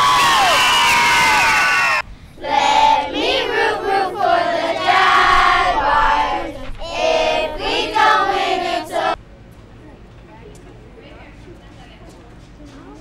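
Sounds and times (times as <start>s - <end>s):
children singing: 2.4s - 9.2s.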